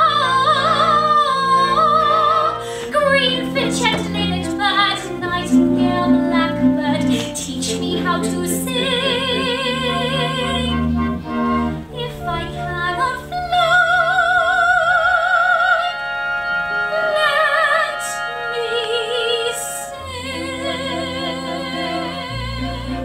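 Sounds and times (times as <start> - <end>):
instrumental accompaniment: 0.0 - 23.0.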